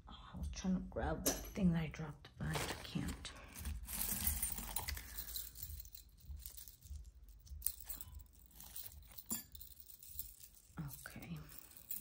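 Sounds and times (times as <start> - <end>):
metal jewelry rustling and clinking: 2.5 - 12.0.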